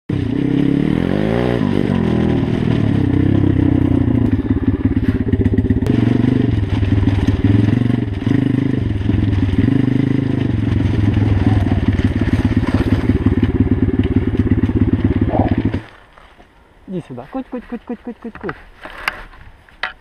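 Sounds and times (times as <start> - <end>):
dirt bike engine running: 0.1 - 16.0.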